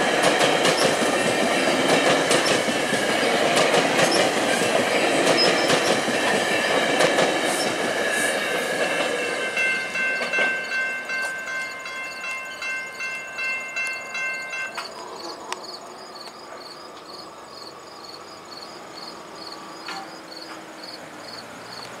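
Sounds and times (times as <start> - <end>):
insects chirping: 0.0 - 22.0
train rumble: 0.0 - 22.0
level crossing bell ringing: 9.2 - 14.9.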